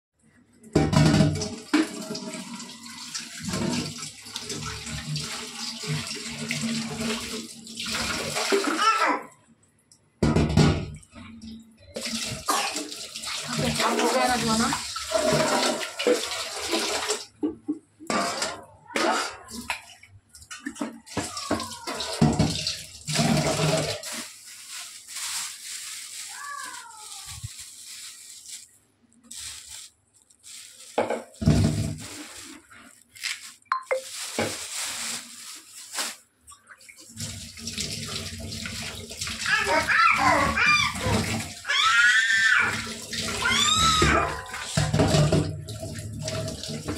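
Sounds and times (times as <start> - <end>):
tap water running into sink: 0.7 - 8.9, 10.3 - 18.6, 19.5 - 24.4, 36.5 - 46.9
water splashing: 11.9 - 17.4, 18.1 - 46.9.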